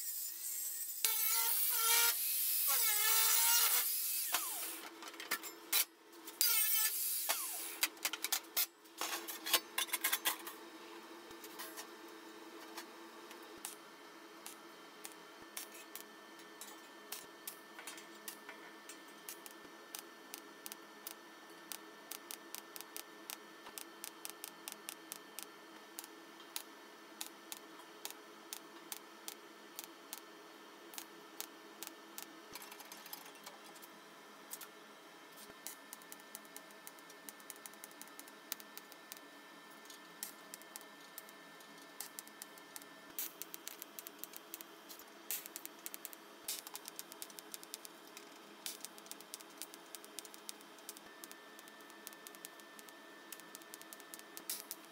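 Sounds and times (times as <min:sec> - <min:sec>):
faint sharp clicks and ticks: 0:42.0 - 0:54.9.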